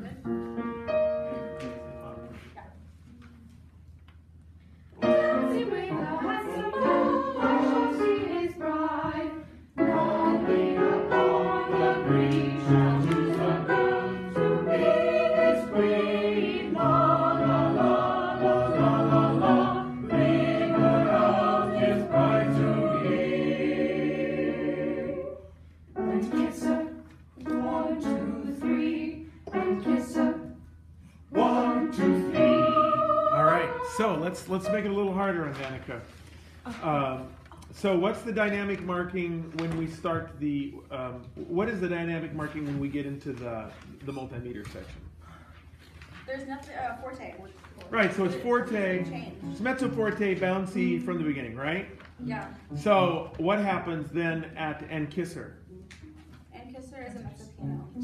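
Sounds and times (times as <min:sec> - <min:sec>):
mixed choir singing: 0:05.0 - 0:30.7, 0:31.3 - 0:34.8.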